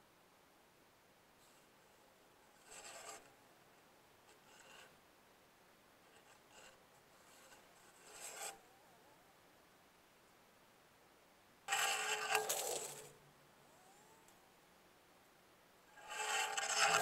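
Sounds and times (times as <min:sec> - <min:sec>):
faint rasping scrapes: 0:01.4 - 0:05.0, 0:06.0 - 0:09.2, 0:11.7 - 0:13.2, 0:15.9 - 0:17.0.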